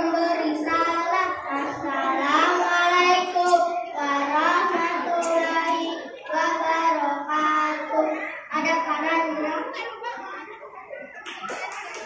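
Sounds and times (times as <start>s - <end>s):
children singing in unison: 0.0s - 9.6s.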